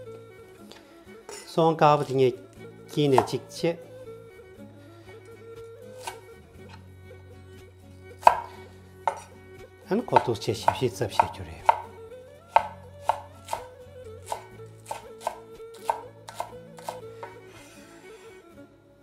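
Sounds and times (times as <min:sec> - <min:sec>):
cleaver chopping on wooden board: 0:03.1 - 0:03.4, 0:08.2 - 0:09.3, 0:10.0 - 0:13.7, 0:14.3 - 0:17.4.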